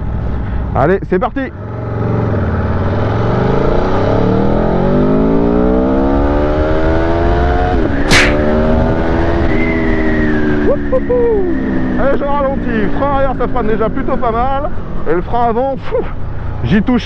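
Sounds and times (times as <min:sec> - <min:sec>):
motorcycle engine accelerating: 0:01.5 - 0:16.7
exhaust crack at upshift: 0:07.7 - 0:08.8.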